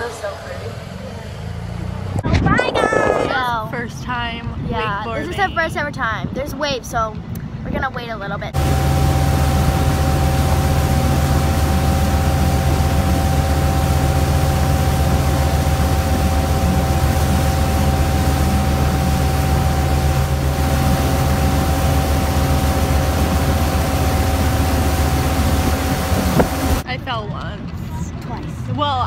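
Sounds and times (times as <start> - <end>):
motorboat engine droning: 0.0 - 5.8, 8.2 - 27.1
wind: 0.0 - 29.0
rush of boat wake: 8.6 - 26.9.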